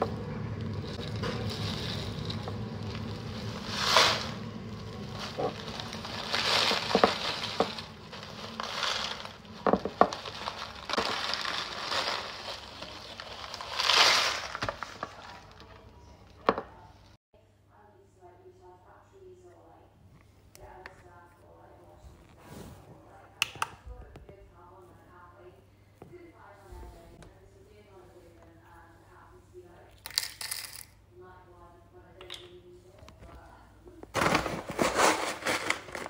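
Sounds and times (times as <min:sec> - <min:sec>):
paper bag crinkling: 0:00.0 - 0:15.9, 0:34.1 - 0:36.0
tea leaves rattling against glass: 0:00.6 - 0:14.6.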